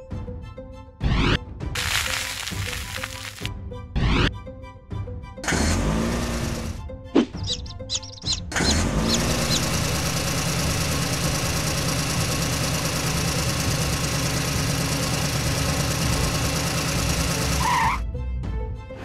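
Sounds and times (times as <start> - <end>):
heavy truck engine rumbling: 5.5 - 18.0.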